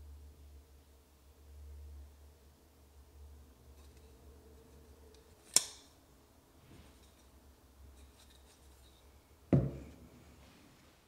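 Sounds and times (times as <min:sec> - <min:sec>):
dull knock: 0:09.5 - 0:09.9.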